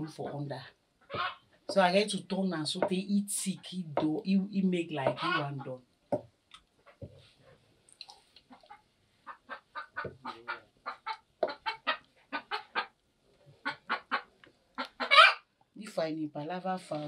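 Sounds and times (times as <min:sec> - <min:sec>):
hen clucking: 0:01.0 - 0:01.8, 0:05.0 - 0:05.8, 0:08.5 - 0:13.0, 0:13.6 - 0:15.4.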